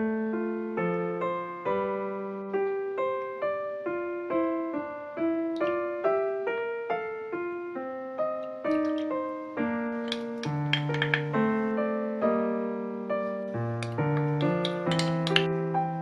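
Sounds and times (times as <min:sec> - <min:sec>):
gentle piano melody: 0:00.0 - 0:16.0.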